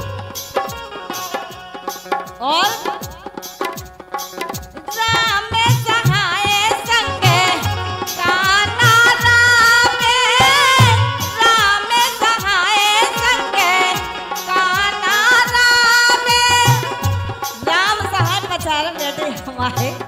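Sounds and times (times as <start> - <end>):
tabla beating: 0.0 - 20.0
woman singing folk song: 5.0 - 20.0.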